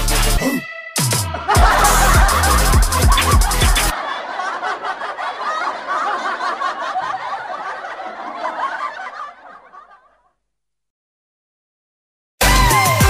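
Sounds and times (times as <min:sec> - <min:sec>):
voices laughing and snickering: 0:01.2 - 0:10.2.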